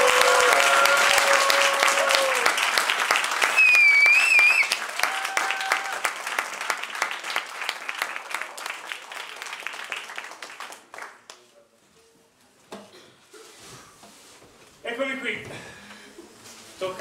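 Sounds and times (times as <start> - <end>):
audience applauding: 0.0 - 11.5.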